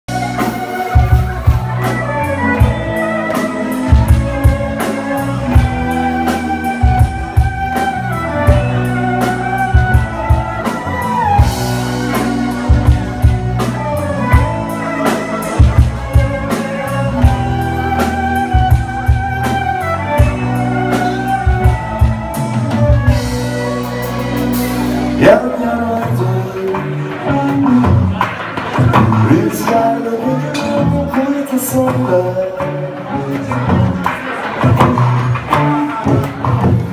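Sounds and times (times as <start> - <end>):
violin: 0.1 - 28.2
drum kit: 0.1 - 36.9
electric guitar: 0.1 - 36.9.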